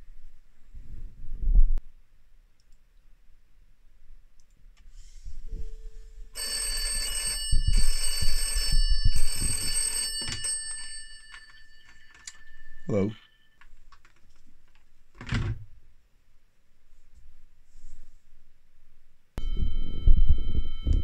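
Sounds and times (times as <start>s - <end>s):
telephone bell ringing: 6.4s - 13.7s.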